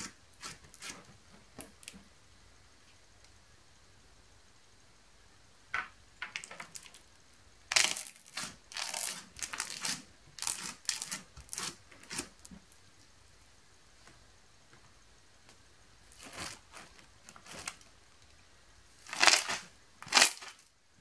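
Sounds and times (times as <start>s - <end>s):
slime crackling and squelching: 7.7s - 12.5s, 16.1s - 17.9s, 19.0s - 20.7s.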